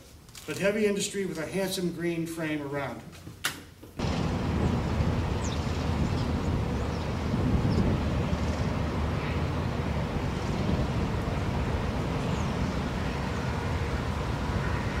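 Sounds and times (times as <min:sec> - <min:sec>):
low outdoor rumble: 0:04.0 - 0:15.0.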